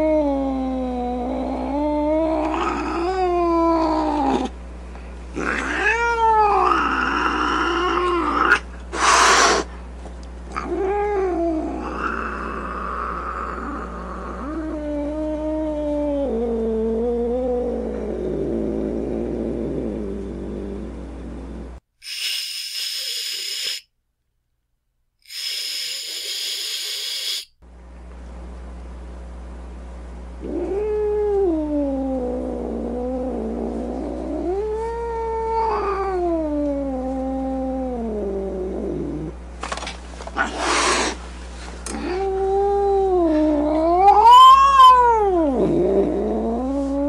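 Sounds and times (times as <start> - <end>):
steady low hum: 0.0 - 21.9, 25.4 - 47.0
cat yowling: 5.4 - 9.7, 34.5 - 37.8, 42.0 - 45.8
cat hissing: 5.4 - 9.8, 22.0 - 23.9, 25.2 - 27.5, 40.3 - 41.3.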